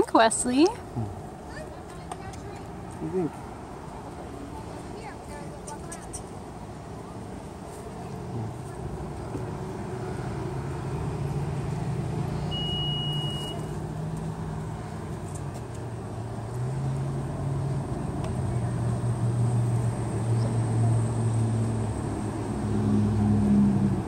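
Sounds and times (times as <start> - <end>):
vehicle engine humming: 0.0 - 24.0
short high beep: 12.5 - 13.7.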